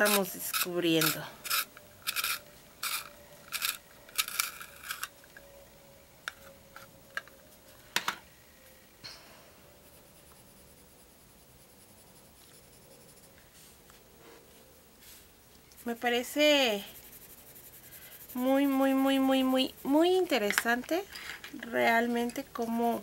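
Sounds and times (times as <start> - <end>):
pencil sharpener rasping: 0.0 - 5.1, 16.7 - 20.6.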